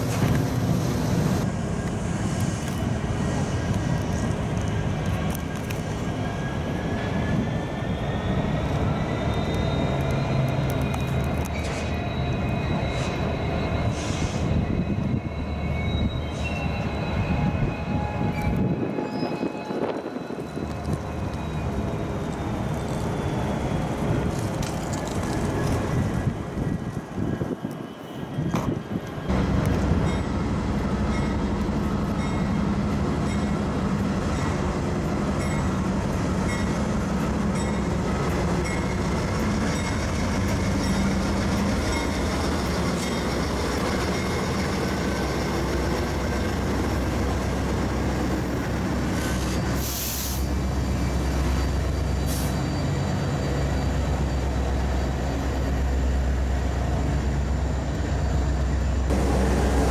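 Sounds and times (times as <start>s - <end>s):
diesel locomotive engines running: 0.0s - 59.9s
train cars rumbling past: 0.0s - 59.9s
short hiss: 49.8s - 50.5s.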